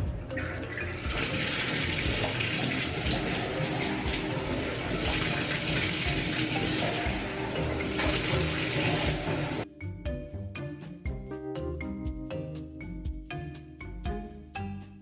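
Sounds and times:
quiet background music: 0.0s - 15.0s
bathtub faucet running: 0.2s - 9.7s.

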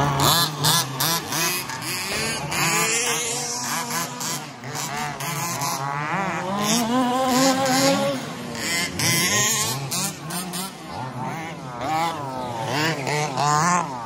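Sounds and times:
electric rc car motors whining: 0.0s - 14.0s.

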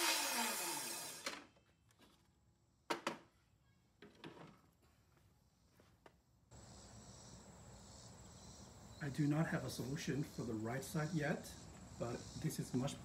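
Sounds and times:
crickets chirring: 6.5s - 13.0s.

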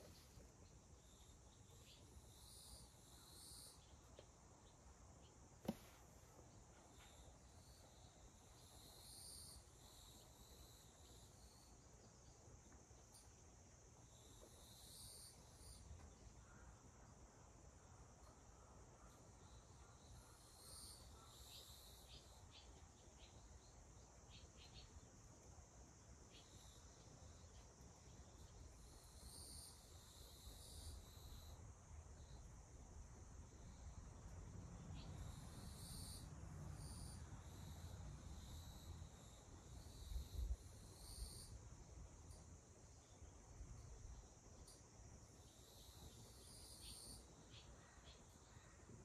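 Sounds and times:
dull thump: 5.6s - 6.1s
high insect drone: 23.2s - 48.8s.

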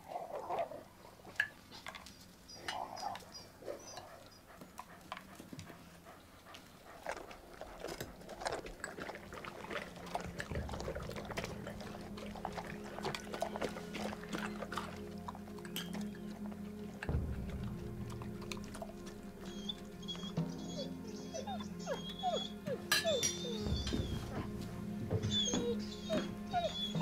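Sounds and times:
dogs chewing and lapping: 0.1s - 27.0s
steady low music tone: 5.8s - 27.0s.

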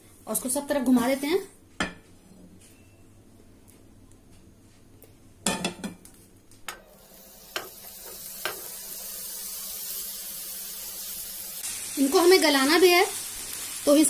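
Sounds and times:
chicken sizzling in oil: 6.7s - 14.0s
skewers knocking on a pan: 7.5s - 8.7s.

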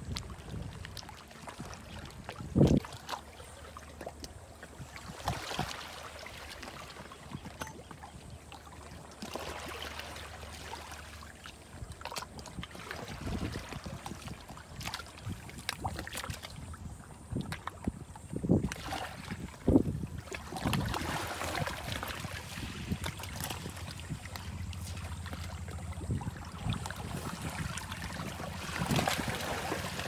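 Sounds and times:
seawater lapping on rocks: 0.0s - 30.0s
wind buffeting microphone: 12.4s - 30.0s.

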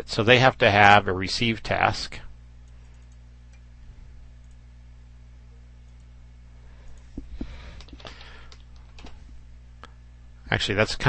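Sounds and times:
low electrical hum: 0.0s - 11.0s
computer keyboard keystrokes: 6.9s - 9.2s.

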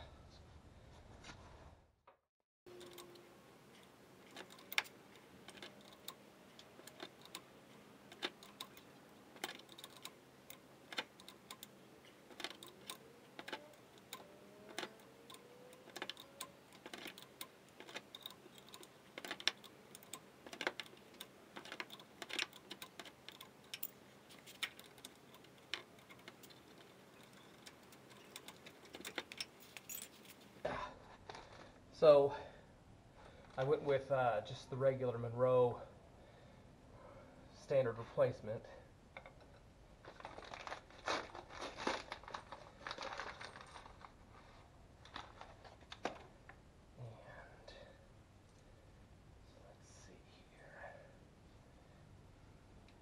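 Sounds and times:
hand tools clicking and tapping: 2.7s - 30.6s.

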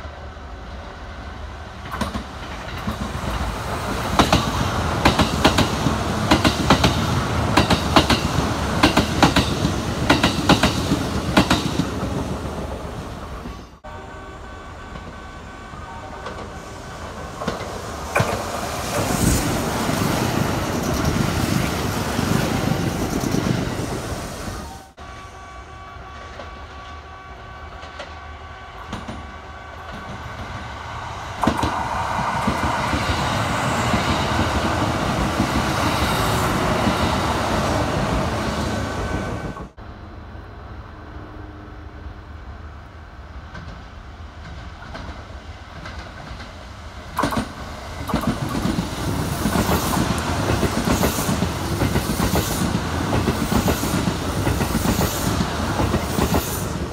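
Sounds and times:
train motor whine: 12.7s - 19.3s
wheels clacking over rails: 44.4s - 56.9s.

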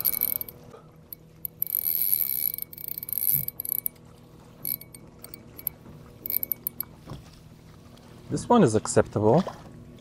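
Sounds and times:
fishing reel whirring and clicking: 0.0s - 6.9s.

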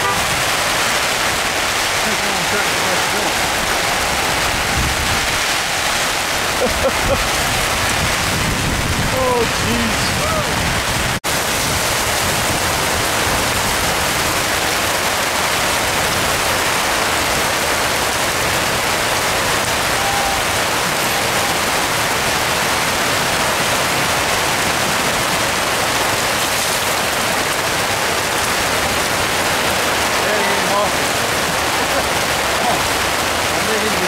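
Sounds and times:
heavy rain pouring: 0.0s - 34.0s.

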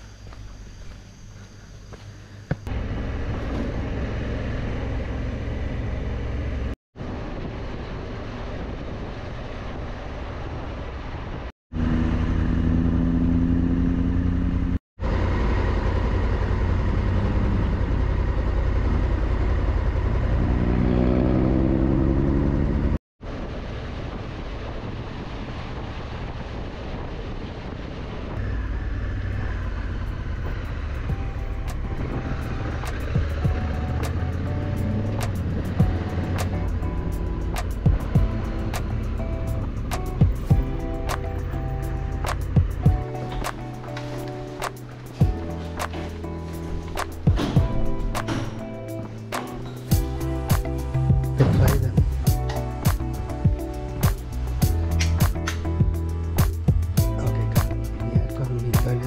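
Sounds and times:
motorcycle engine running: 11.8s - 23.0s, 28.4s - 46.2s, 46.8s - 59.0s
wind rush: 23.2s - 59.0s.

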